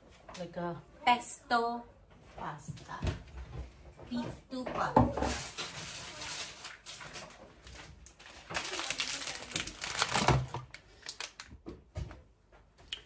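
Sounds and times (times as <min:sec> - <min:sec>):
kitchen items rustling and clicking: 0:03.1 - 0:12.3.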